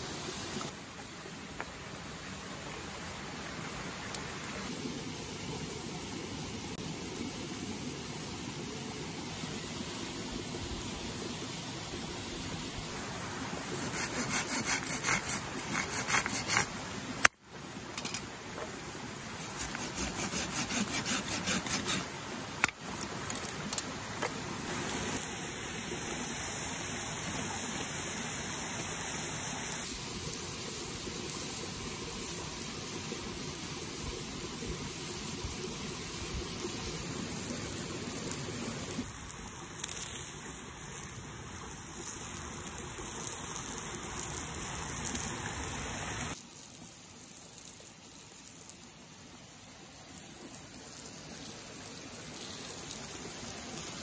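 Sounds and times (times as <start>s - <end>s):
steady hiss: 0.0s - 54.0s
pruning saw cutting wood: 13.7s - 16.8s, 19.4s - 22.1s.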